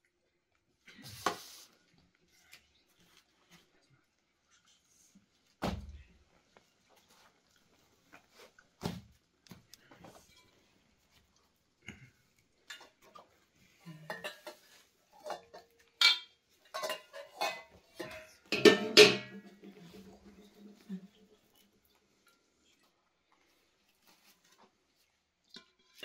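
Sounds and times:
metal bowls and ladle clinking: 0:13.9 - 0:20.8.

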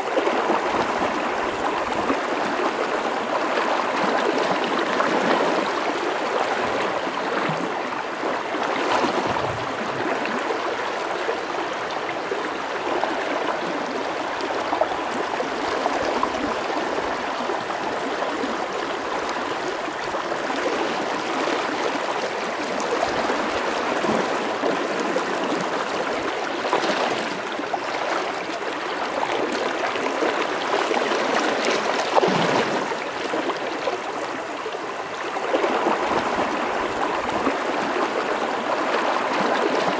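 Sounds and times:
river water rushing over rocks: 0:00.0 - 0:39.9.

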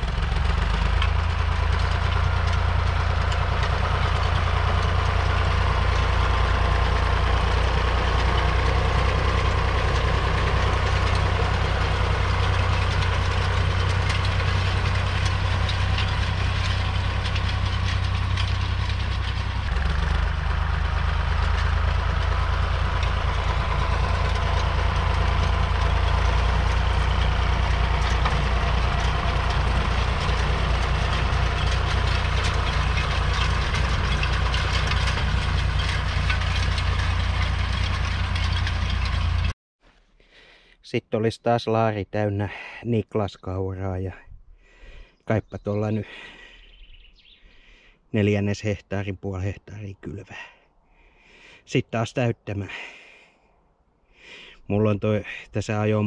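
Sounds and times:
tractor diesel engine running: 0:00.0 - 0:39.6, 0:43.6 - 0:48.7.

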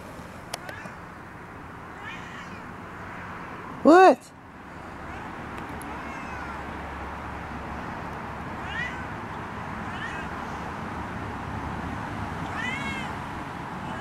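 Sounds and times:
cat meowing: 0:00.6 - 0:01.0, 0:01.9 - 0:03.4, 0:04.9 - 0:06.7, 0:08.6 - 0:09.2, 0:09.9 - 0:10.5, 0:12.4 - 0:13.2.

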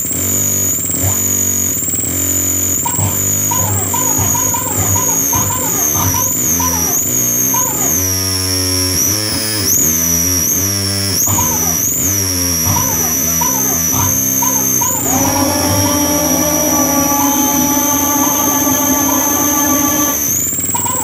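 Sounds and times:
swooping pitched tones: 0:00.0 - 0:10.2, 0:11.3 - 0:21.0
high whine: 0:00.0 - 0:10.5, 0:11.2 - 0:21.0
distorted electronic music: 0:00.0 - 0:21.0
steady low drone: 0:11.0 - 0:21.0.

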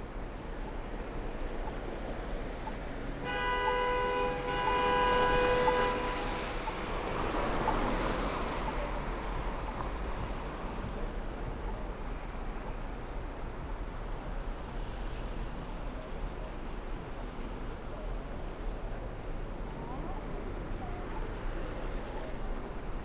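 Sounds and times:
rush of passing traffic: 0:00.0 - 0:23.0
street traffic: 0:00.0 - 0:23.0
vehicle horn blaring: 0:03.2 - 0:06.6.

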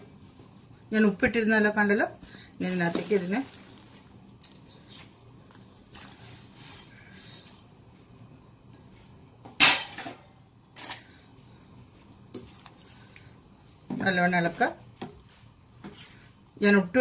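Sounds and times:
dry noodles rustling into pot: 0:02.6 - 0:07.7
steel kitchenware clanking: 0:09.6 - 0:11.1.

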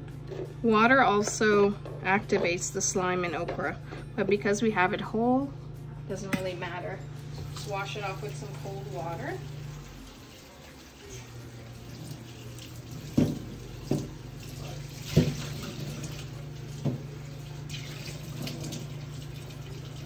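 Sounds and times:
tap water running into sink: 0:07.4 - 0:20.0.

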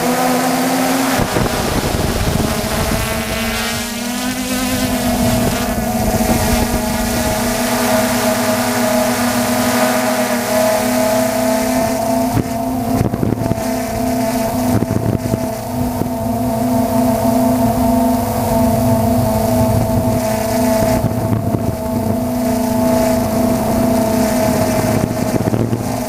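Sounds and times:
drone motors whining: 0:00.0 - 0:26.0
wind buffeting microphone: 0:00.0 - 0:26.0.

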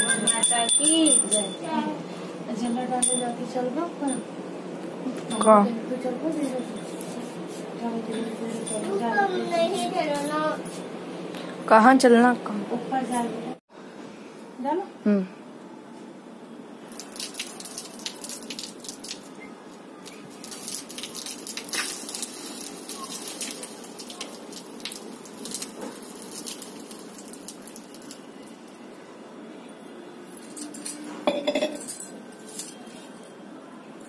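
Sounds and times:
metal pot clinking on concrete: 0:00.0 - 0:01.8, 0:02.6 - 0:04.3, 0:30.5 - 0:32.8
water splattering onto concrete: 0:16.9 - 0:19.4, 0:20.0 - 0:28.8.

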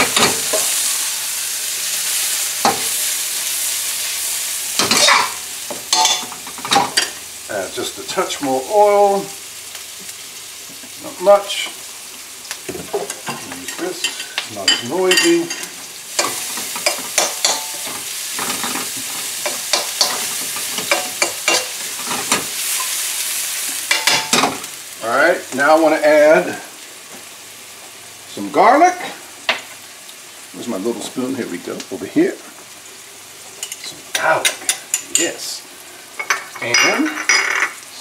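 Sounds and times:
onions sizzling in hot oil: 0:00.0 - 0:38.0
metal utensil scraping a pan: 0:04.8 - 0:07.2, 0:12.9 - 0:23.1.

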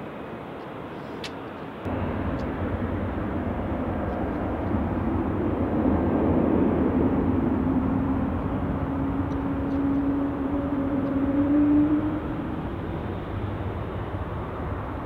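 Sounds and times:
jet engine noise: 0:00.0 - 0:15.0
steady whine: 0:01.8 - 0:15.0.

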